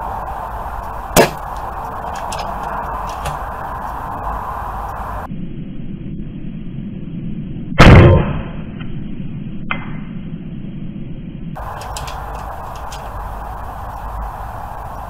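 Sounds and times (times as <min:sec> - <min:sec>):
low background noise: 0:00.0 - 0:07.6, 0:11.5 - 0:15.0
air rifle shot: 0:01.1 - 0:02.5.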